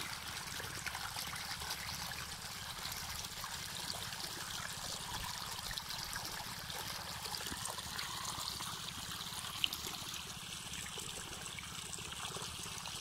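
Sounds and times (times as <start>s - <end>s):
water running and trickling: 0.0s - 13.0s.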